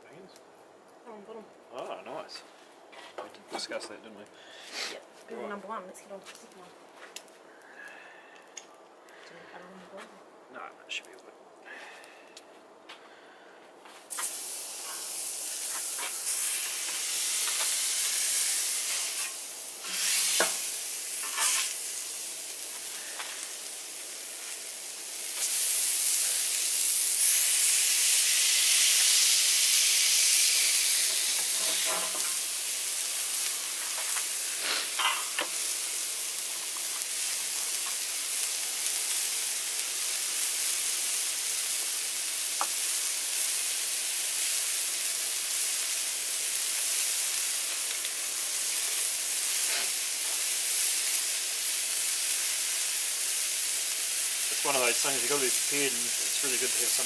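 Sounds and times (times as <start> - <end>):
meat patties sizzling on griddle: 3.6 - 5.0, 13.9 - 57.0.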